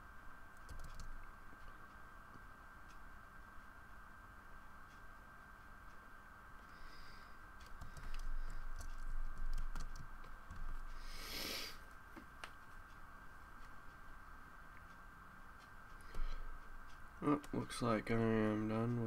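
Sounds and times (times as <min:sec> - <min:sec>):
faint high whine: 0:00.0 - 0:19.0
computer keyboard clicks: 0:00.6 - 0:01.2, 0:07.6 - 0:10.8.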